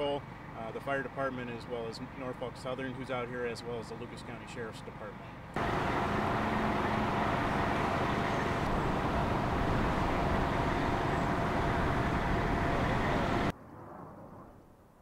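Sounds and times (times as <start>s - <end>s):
vehicle engine noise: 5.5s - 13.5s.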